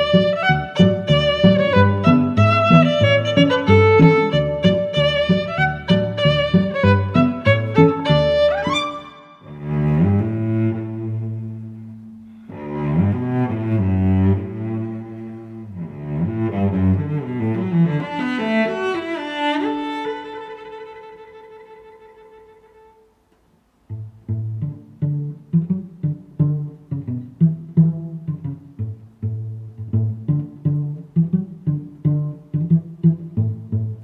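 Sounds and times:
bowed strings long notes: 0.0 - 23.1, 23.9 - 34.0.

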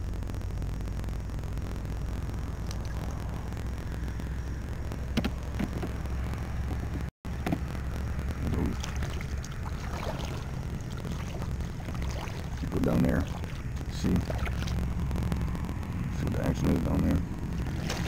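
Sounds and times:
steady low rumble: 0.0 - 18.0
faint water lapping: 8.6 - 15.0, 17.6 - 18.0.

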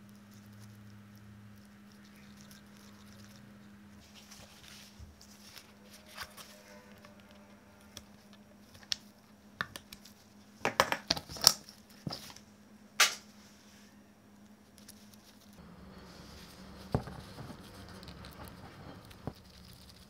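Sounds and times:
crinkly cardboard scrape: 15.3 - 20.0.

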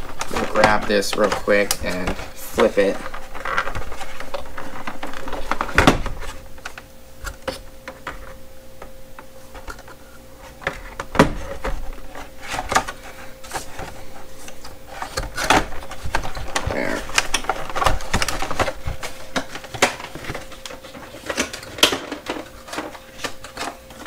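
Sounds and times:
packaging knocks and clicks: 15.1 - 24.0.

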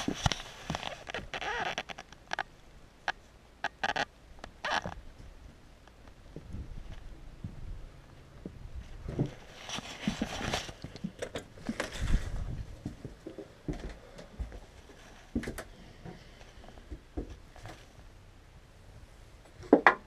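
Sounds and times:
footsteps: 0.0 - 1.7, 6.3 - 7.8, 8.4 - 17.8
rustling: 0.0 - 18.2.

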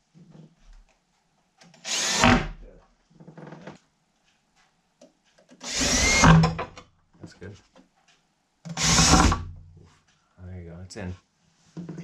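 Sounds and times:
cordless drill driving screws: 1.7 - 2.6, 5.6 - 6.6, 8.7 - 9.4.

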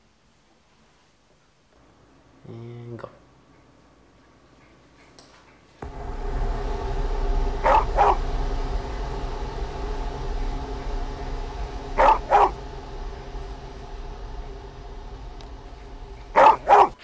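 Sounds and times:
steady low drone: 5.8 - 17.0.

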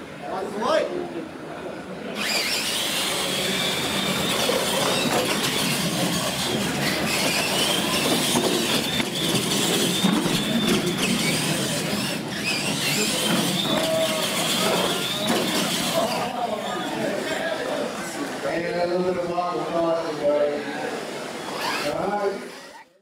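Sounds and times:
toy truck motors whining: 2.2 - 17.4, 21.3 - 23.0.

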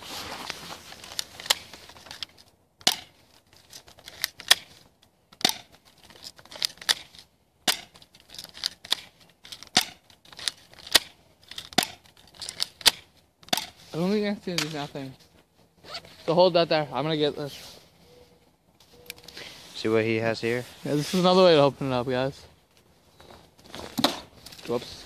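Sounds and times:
sharp clicks and crunches: 0.2 - 13.8.

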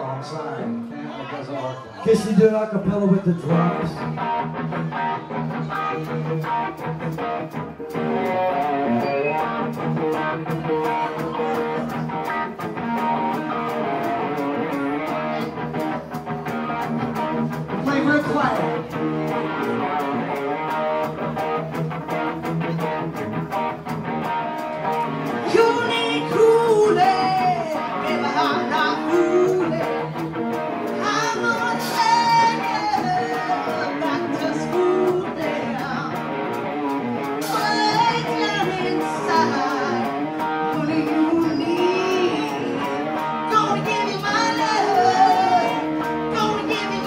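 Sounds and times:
rock band playing: 2.1 - 47.0
woman singing: 25.4 - 30.2, 30.9 - 36.2, 37.4 - 47.0.

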